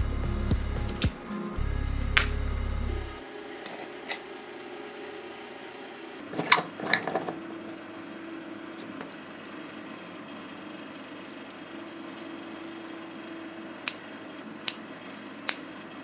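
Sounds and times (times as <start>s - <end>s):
metallic clicks and scrapes: 11.8s - 16.0s.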